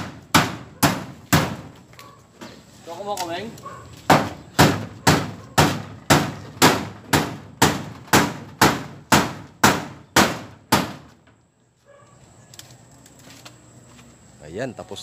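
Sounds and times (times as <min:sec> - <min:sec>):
hammer driving nails: 0:04.1 - 0:11.1.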